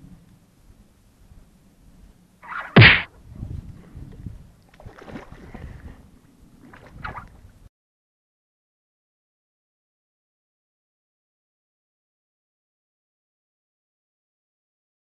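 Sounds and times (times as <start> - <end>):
fishing pole swishing through air: 2.4 - 3.1.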